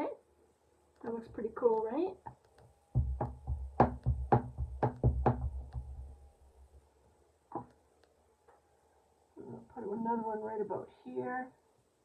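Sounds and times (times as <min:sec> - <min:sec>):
stamp block knocking on ink pad: 0:03.0 - 0:06.0.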